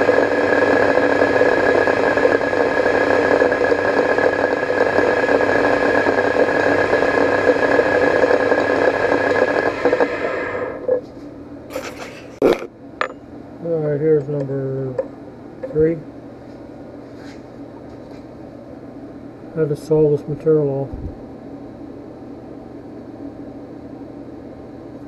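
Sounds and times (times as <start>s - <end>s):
lathe spindle running: 0.0s - 11.0s.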